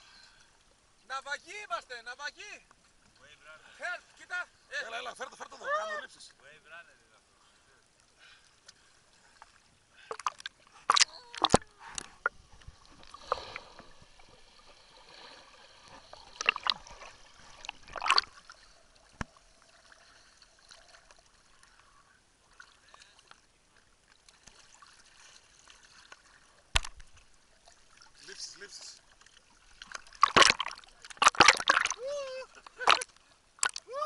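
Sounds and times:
water gurgling and lapping: 7.3s - 34.0s
sea water splashing: 8.1s - 34.0s.

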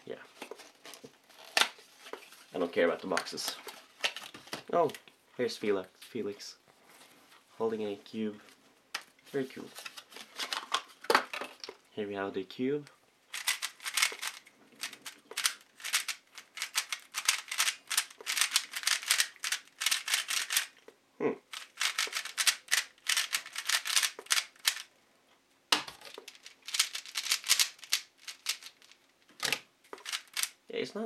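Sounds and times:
puzzle cube plastic clicking: 13.3s - 20.8s, 21.5s - 24.9s, 25.8s - 30.6s.

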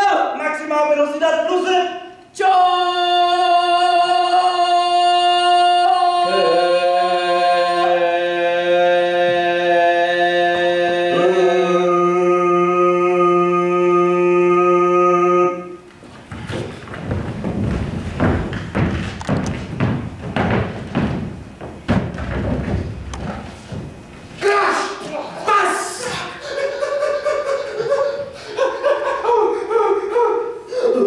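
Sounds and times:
voices singing held chord: 2.9s - 15.9s
wooden chairs being moved: 15.9s - 24.4s.

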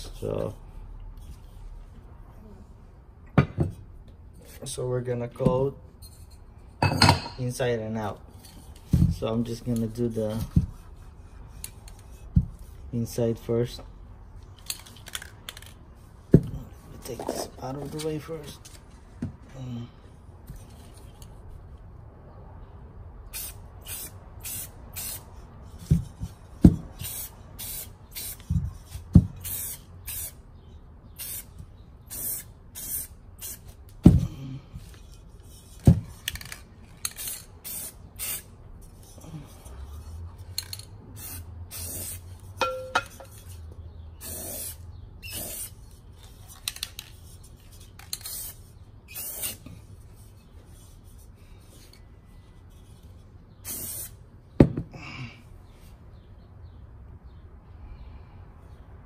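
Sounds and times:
aerosol spray can hissing: 53.6s - 54.1s.

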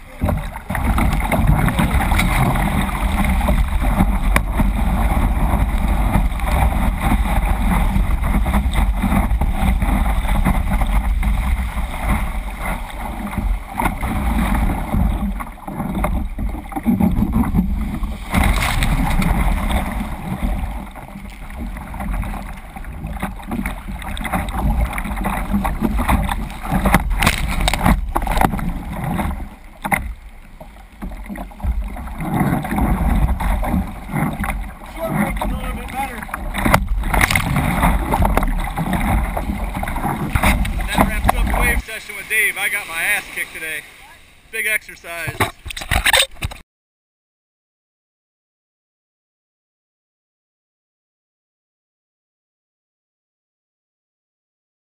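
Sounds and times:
ocean water rushing and splashing: 0.0s - 46.6s
sharp water splashes: 0.0s - 46.6s.

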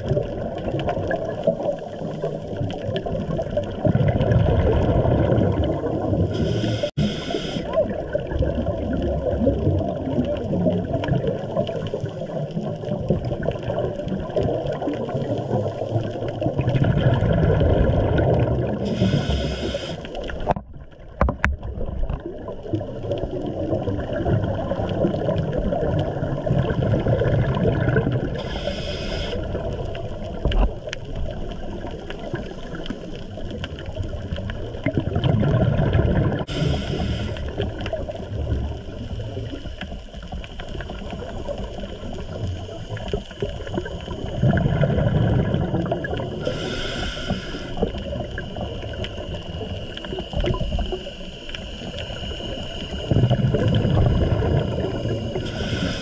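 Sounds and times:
exhaled bubbles bursting: 0.0s - 46.8s, 47.8s - 56.0s
low underwater noise: 0.0s - 56.0s
regulator inhalation hiss: 6.3s - 7.8s, 18.8s - 20.4s, 28.4s - 29.7s, 36.5s - 37.6s, 46.4s - 53.2s, 54.8s - 56.0s.

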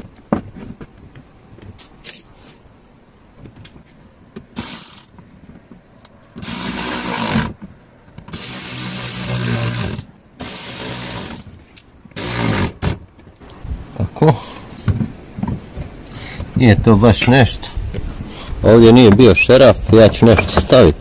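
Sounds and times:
power screwdriver driving screws: 6.4s - 7.6s, 8.3s - 11.5s, 12.2s - 13.0s.

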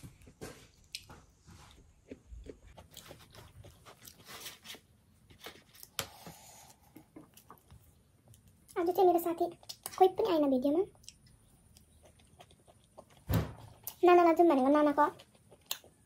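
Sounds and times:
chewing and crunching pizza: 0.0s - 6.2s, 7.1s - 16.0s.

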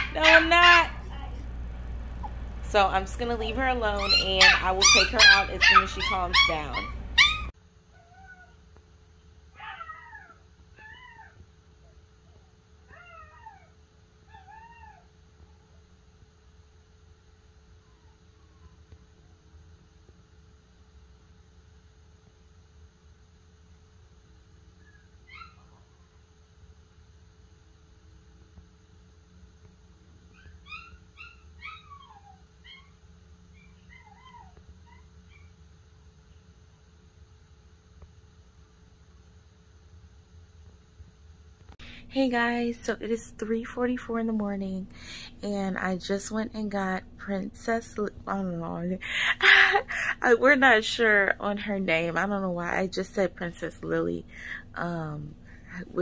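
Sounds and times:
faint steady hum: 0.0s - 56.0s
puppy whining: 3.9s - 8.6s, 9.6s - 15.8s, 24.8s - 26.2s, 30.3s - 35.6s.

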